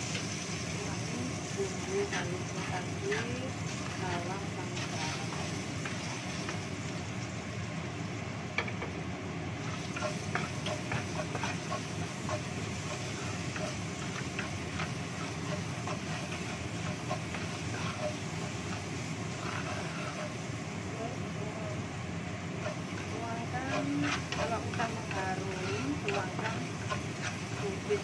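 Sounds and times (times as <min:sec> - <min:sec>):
light sizzling: 0:00.0 - 0:28.0
wooden spatula tapping wok: 0:08.6 - 0:09.0, 0:09.8 - 0:20.4, 0:22.6 - 0:28.0.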